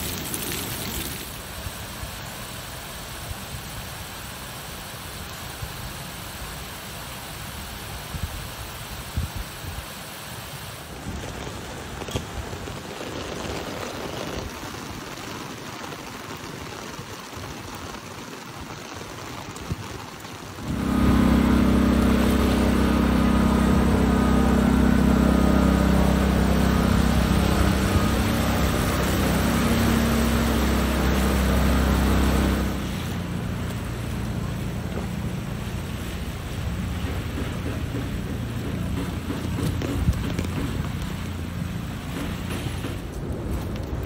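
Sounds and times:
rain on road and umbrella: 0.0s - 44.0s
low hum with higher whine: 20.6s - 42.3s.

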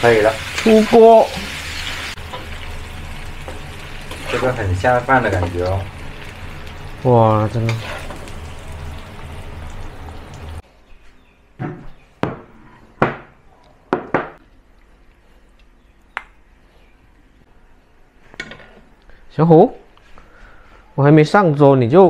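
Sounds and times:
hot wok hissing: 0.0s - 10.6s
food scraped from wok: 7.7s - 8.2s
ceramic bowls knocking on table: 13.9s - 14.4s.

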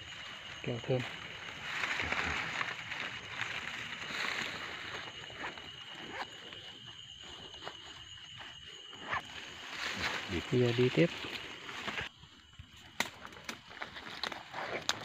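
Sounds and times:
night insects droning: 0.0s - 15.0s
hands rustling leaves and bag: 0.1s - 6.9s.

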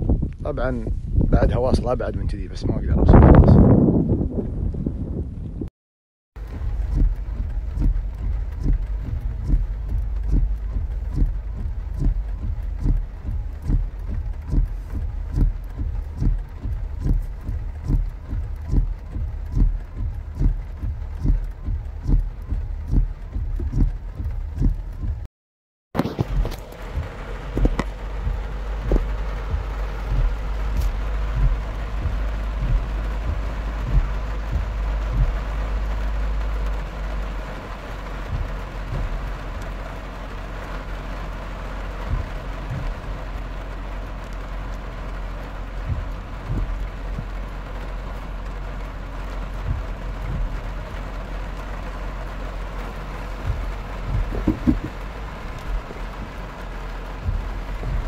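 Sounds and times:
car driving through water: 6.4s - 25.1s, 26.0s - 58.0s
heavy rain drumming on car roof: 6.4s - 25.3s, 26.0s - 58.0s
dull knocks: 26.0s - 35.4s, 53.5s - 55.0s.

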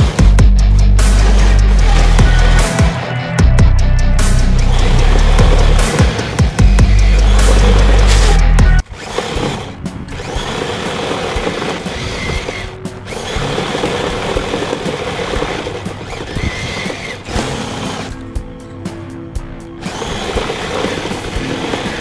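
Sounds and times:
electric motors whining: 0.0s - 22.0s.

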